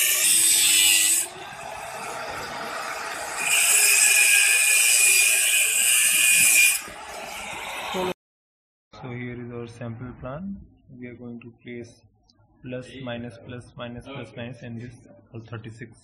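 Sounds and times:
angle grinder cutting metal: 0:00.0 - 0:08.1.

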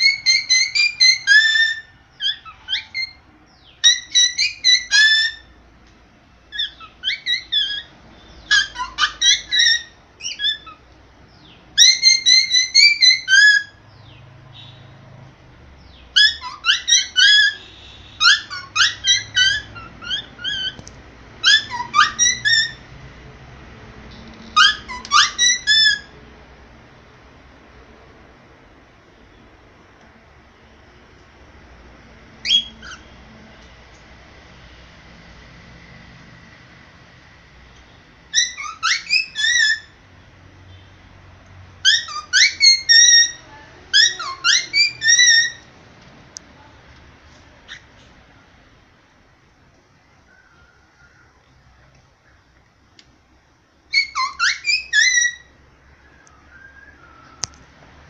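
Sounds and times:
cockatiel whistling: 0:00.0 - 0:03.2, 0:03.8 - 0:05.5, 0:06.5 - 0:10.8, 0:11.8 - 0:13.8, 0:16.1 - 0:20.8, 0:21.4 - 0:22.8, 0:24.6 - 0:26.2, 0:32.4 - 0:33.1, 0:38.3 - 0:40.0, 0:41.8 - 0:45.7, 0:53.9 - 0:57.6.

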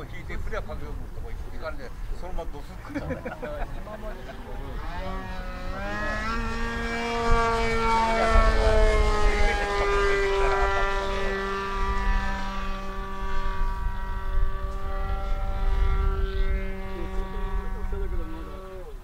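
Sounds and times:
low rumble: 0:00.0 - 0:19.0
model airplane motor droning: 0:00.0 - 0:19.0.

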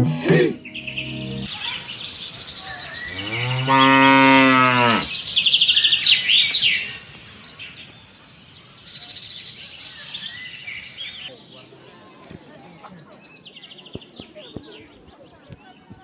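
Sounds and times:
cow mooing: 0:00.0 - 0:00.7, 0:03.1 - 0:05.1
birds chirping and twittering: 0:00.0 - 0:16.0.

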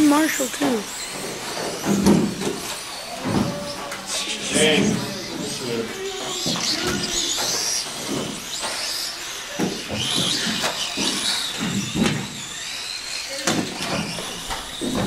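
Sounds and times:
rc car motors whining: 0:00.0 - 0:15.0.

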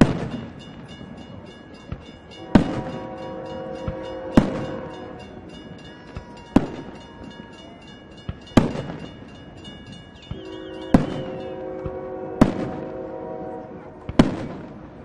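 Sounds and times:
firework booms with echo: 0:00.0 - 0:00.6, 0:02.5 - 0:02.9, 0:10.3 - 0:12.9, 0:14.1 - 0:14.8
faint firework pops: 0:14.1 - 0:14.8.

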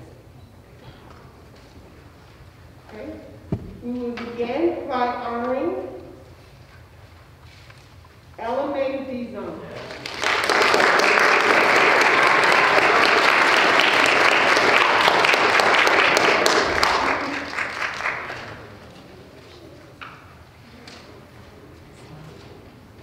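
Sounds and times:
audience applauding: 0:09.8 - 0:18.9.

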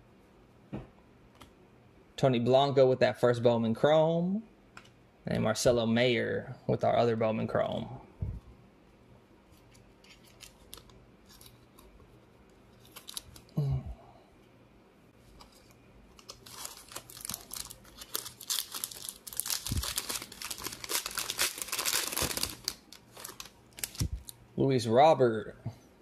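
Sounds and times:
plastic wrapper crinkling: 0:09.7 - 0:12.0, 0:12.7 - 0:13.5, 0:15.5 - 0:24.4.

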